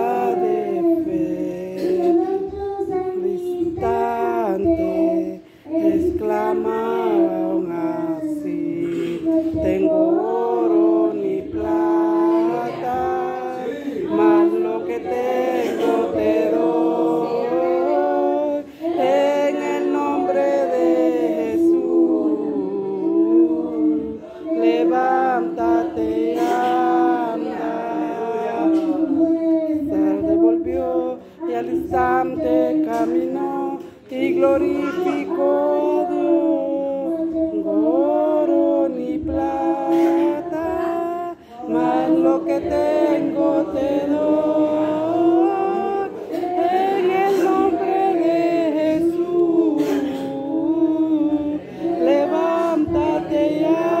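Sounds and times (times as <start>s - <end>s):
boy singing into a microphone: 0.0s - 54.0s.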